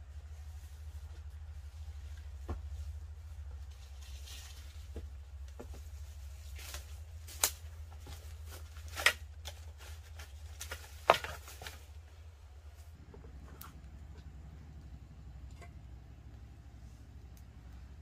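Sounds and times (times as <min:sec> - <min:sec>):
footsteps through leaf litter: 0:03.0 - 0:05.2, 0:05.8 - 0:11.9
twigs snapping: 0:06.5 - 0:11.9.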